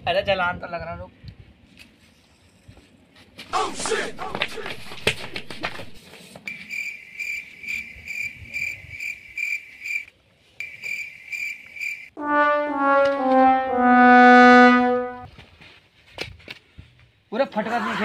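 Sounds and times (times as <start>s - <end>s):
crickets chirping: 6.5s - 12.1s
sad trombone: 12.2s - 15.3s.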